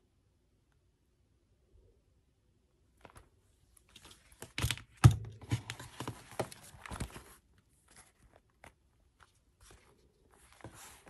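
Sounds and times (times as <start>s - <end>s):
paper rustling: 3.0s - 11.0s.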